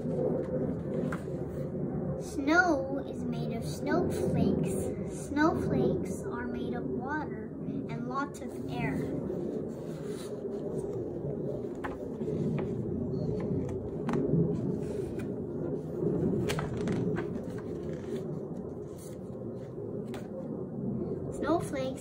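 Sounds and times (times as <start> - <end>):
low hum: 0.0 - 22.0
book pages turning: 0.7 - 1.3, 11.6 - 15.4, 16.4 - 20.4.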